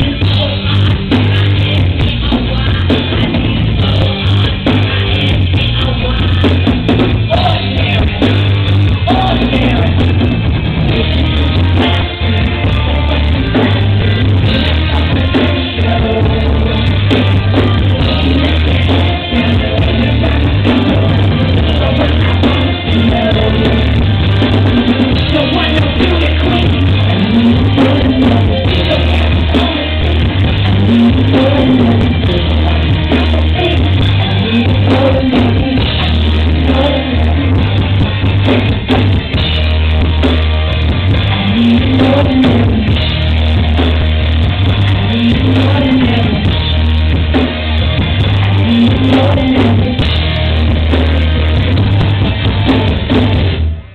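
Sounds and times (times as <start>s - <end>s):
boomy bass: 0.0s - 53.9s
live pop-rock band: 0.0s - 53.9s.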